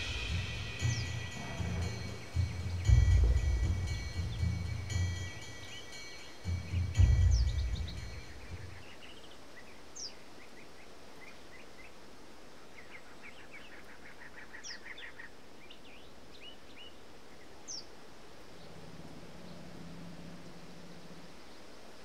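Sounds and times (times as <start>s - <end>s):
low rumble with steady tones: 0.0s - 8.8s, 18.6s - 21.5s
birds chirping and twittering: 0.0s - 12.0s.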